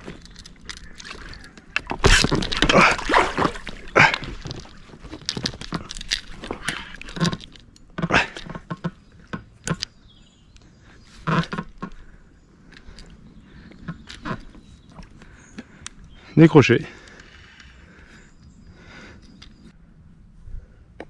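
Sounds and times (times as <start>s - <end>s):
knocks and rustles: 0.0s - 9.9s
water splashing: 0.8s - 4.8s.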